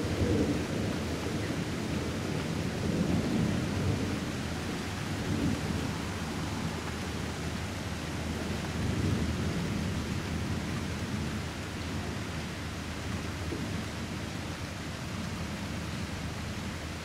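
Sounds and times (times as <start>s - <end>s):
rain hissing: 0.0s - 11.3s.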